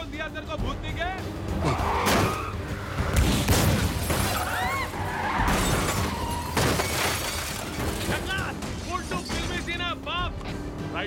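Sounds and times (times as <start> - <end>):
glass shattering: 3.3 - 9.8.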